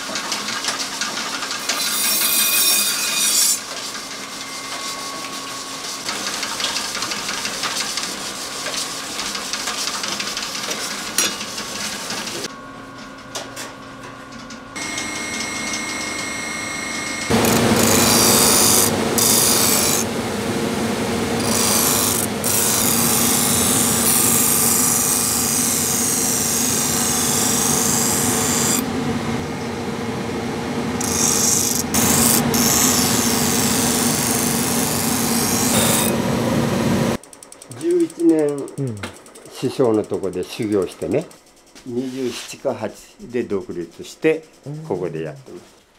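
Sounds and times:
knife blade grinding on wheel: 0:01.6 - 0:08.4, 0:17.1 - 0:20.1, 0:21.4 - 0:28.9, 0:31.0 - 0:36.2
grinder motor hum: 0:14.7 - 0:41.2.

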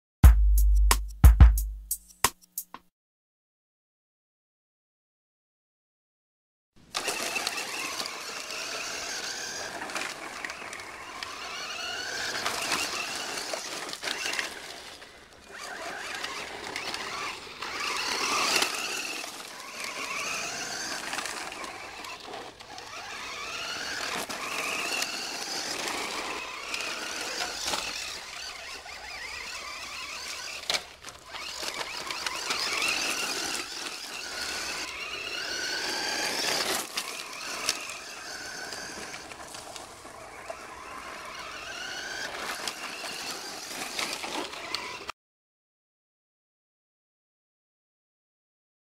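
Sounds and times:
toy car electric motors whining: 0:06.8 - 0:45.2.

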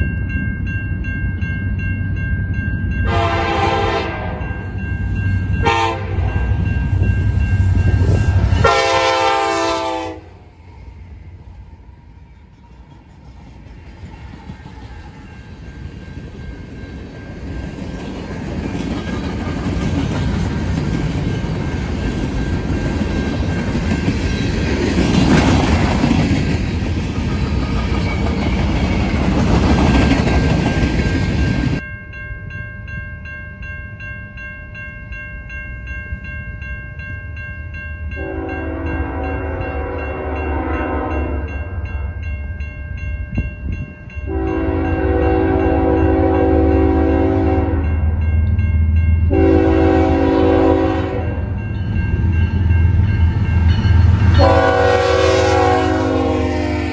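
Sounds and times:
diesel locomotive engine rumble: 0:00.0 - 0:31.9, 0:38.1 - 0:56.9
train horn blast: 0:03.0 - 0:04.6, 0:05.6 - 0:06.5, 0:08.6 - 0:10.6, 0:38.2 - 0:41.6, 0:44.3 - 0:48.0, 0:49.3 - 0:51.5, 0:54.2 - 0:56.9.

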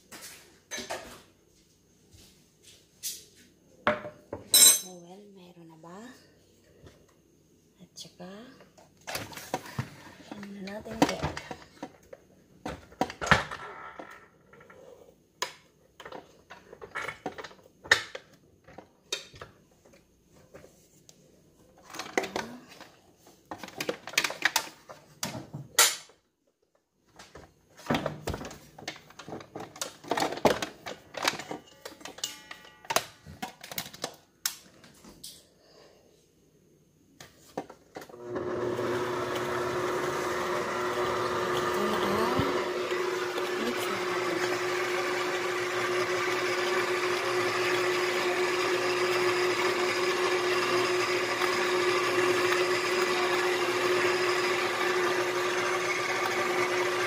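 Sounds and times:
kitchen utensils clattering: 0:04.4 - 0:05.0
electric stand mixer running: 0:38.2 - 0:57.0.

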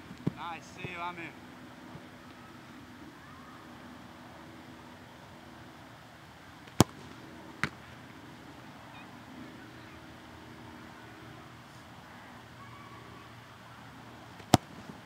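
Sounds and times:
ball kicked with thump: 0:06.7 - 0:07.8.

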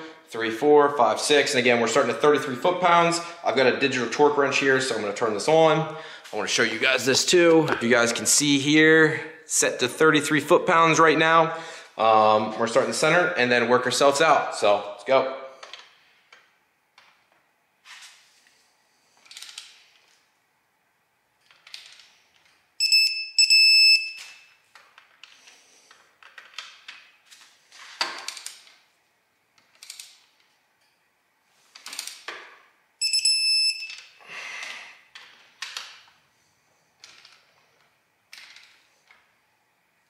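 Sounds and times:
torque wrench high beeps: 0:22.8 - 0:24.5, 0:33.0 - 0:34.1.

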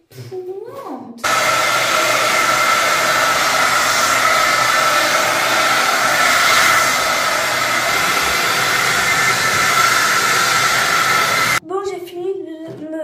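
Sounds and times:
hair dryer running: 0:01.2 - 0:11.6.

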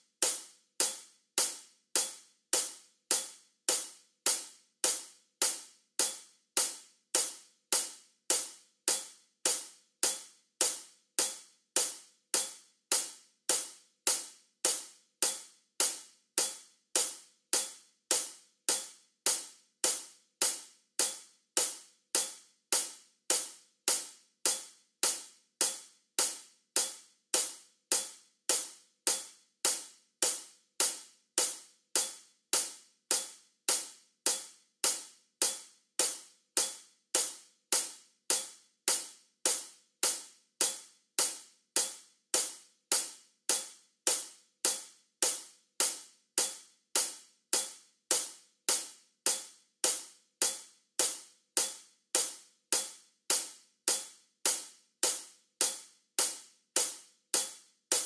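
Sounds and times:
hi-hat metronome clicks: 0:00.0 - 0:58.0.

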